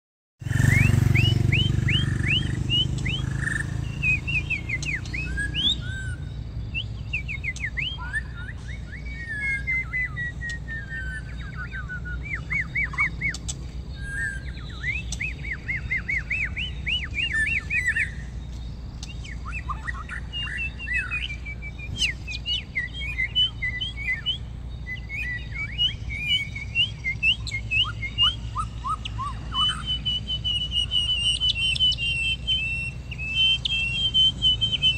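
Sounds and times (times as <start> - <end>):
bird singing whistled song: 0.4 - 34.9.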